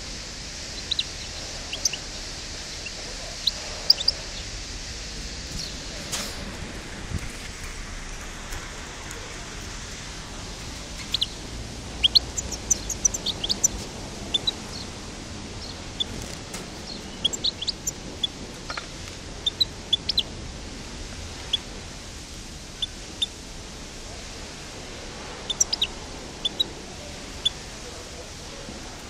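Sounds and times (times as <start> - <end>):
background hiss: 0.0 - 29.0
bird chirps and twitters: 0.7 - 4.5, 10.4 - 14.9, 15.6 - 20.3, 25.5 - 26.7.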